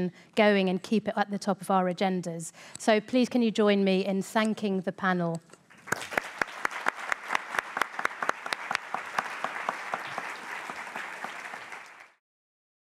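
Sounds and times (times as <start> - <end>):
audience applauding: 5.7 - 12.2
loud close claps: 5.7 - 12.2.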